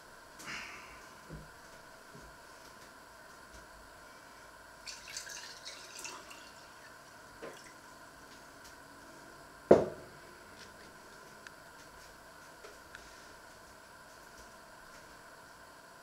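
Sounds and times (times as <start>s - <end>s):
liquid pouring into a glass: 4.8s - 7.0s
glass knocking on wooden worktop: 9.7s - 10.0s.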